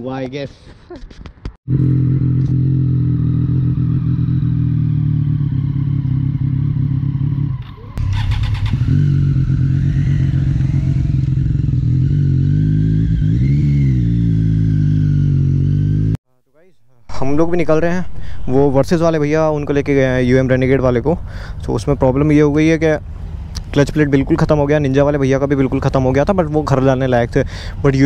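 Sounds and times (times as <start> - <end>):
motorcycle engine idling: 1.8 - 13.0.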